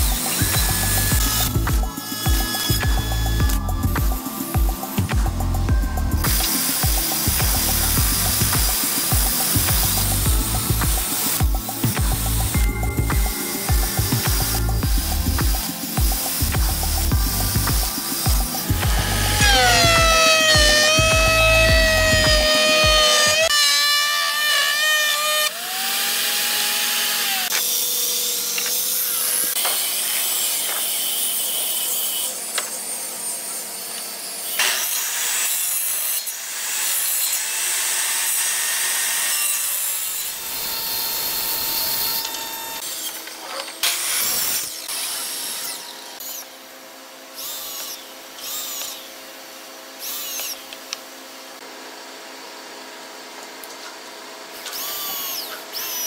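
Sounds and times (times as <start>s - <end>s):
cordless drill bursts: 0.0s - 4.7s, 6.2s - 29.6s, 47.3s - 49.1s, 50.0s - 50.8s, 54.6s - 56.0s
power tool cutting whine: 0.0s - 52.6s, 54.5s - 56.0s.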